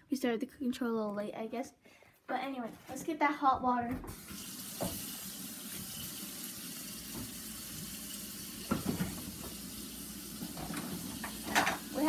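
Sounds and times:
faucet running into sink: 4.1 - 12.0.

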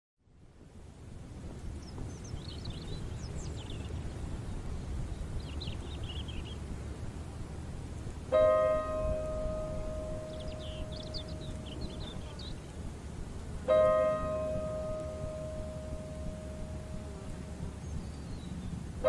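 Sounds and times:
steady low rumble: 0.3 - 19.0
bird chirps: 1.8 - 6.6, 10.0 - 12.8, 17.2 - 18.8
piano note ringing: 8.3 - 11.6, 13.7 - 17.7.

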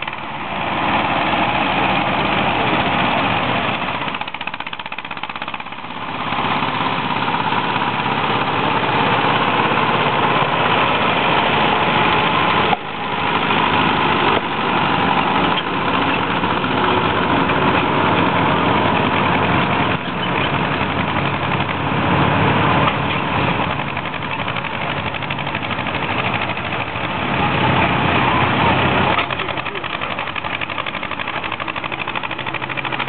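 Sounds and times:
tractor engine running: 0.0 - 33.0.

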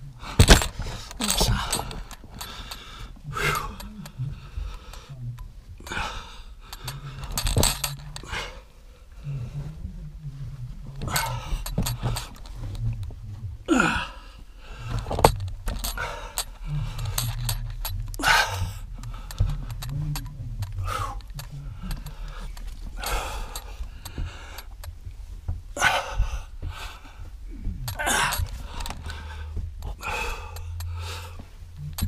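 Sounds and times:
heavy breathing: 0.0 - 32.0
rock rubble clattering underfoot: 0.3 - 2.8.

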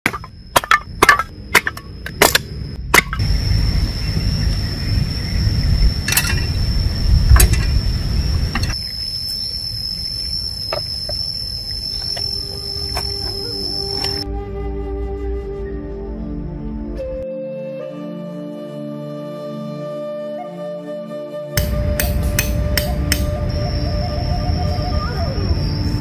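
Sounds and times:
hatchet chopping kindling: 0.0 - 3.2, 21.6 - 23.3
high-pitched tone: 21.6 - 26.0.

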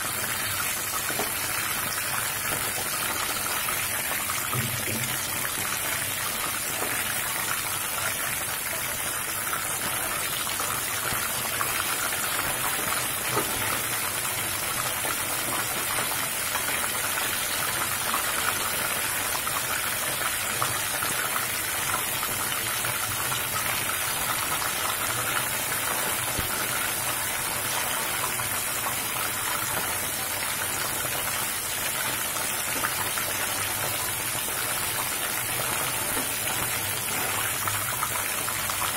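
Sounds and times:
food sizzling in hot oil: 0.0 - 38.9.

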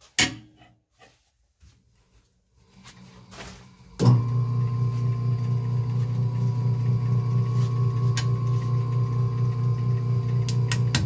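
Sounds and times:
wood lathe humming: 4.0 - 11.0.

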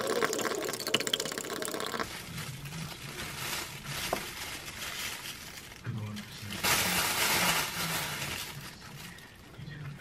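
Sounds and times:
cabbage rustling in plastic bag: 2.0 - 9.4.

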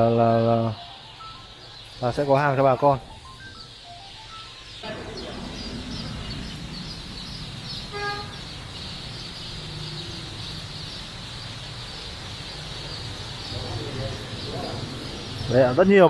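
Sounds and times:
chicks peeping: 0.0 - 16.0
lower-pitched chick call: 3.8 - 10.9.

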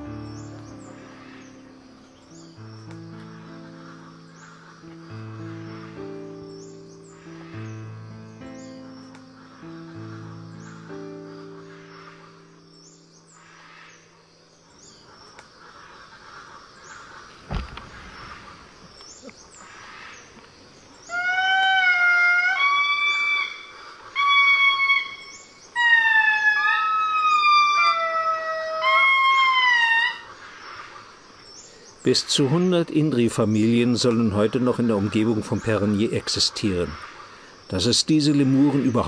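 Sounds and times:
music: 0.0 - 13.6
faint forest background: 0.0 - 39.0
thump: 17.4 - 18.3.

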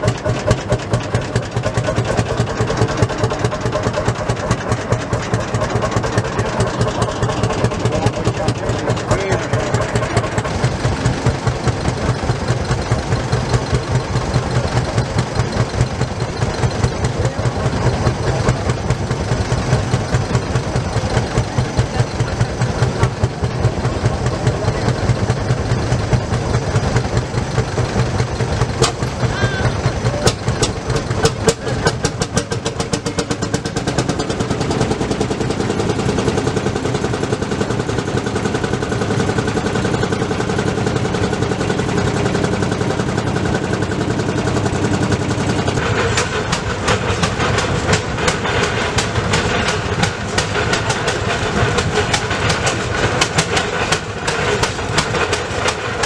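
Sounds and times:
old tractor engine running: 0.0 - 56.0
sharp engine pops: 28.6 - 29.2, 30.2 - 34.8, 45.6 - 56.0.

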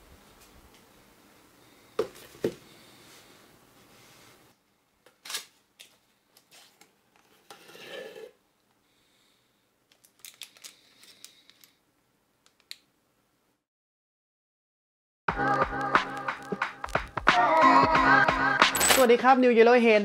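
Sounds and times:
plastic bags rustling: 10.0 - 11.7.

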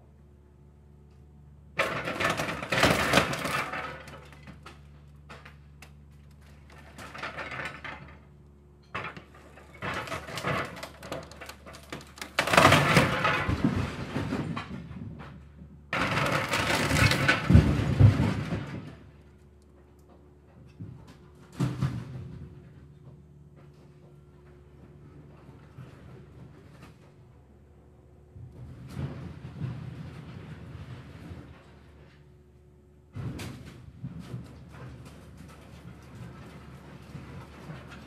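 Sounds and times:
timber cracking and debris crashing: 1.8 - 4.5, 9.8 - 15.0, 16.0 - 19.1.

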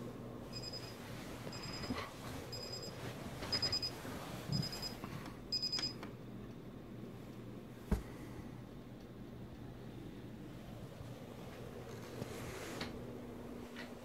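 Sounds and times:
alarm clock beeping: 0.5 - 4.0, 4.6 - 6.0
bedding rustling: 0.6 - 5.3, 10.8 - 14.0.

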